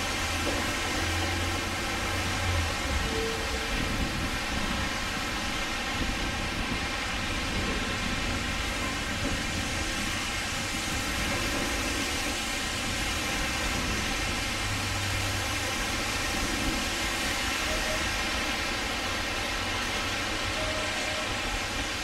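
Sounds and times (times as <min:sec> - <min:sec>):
hiss of wet street: 0:00.0 - 0:22.0
trams rolling over tracks: 0:00.0 - 0:22.0
faint short tone: 0:03.0 - 0:03.8, 0:17.7 - 0:18.3.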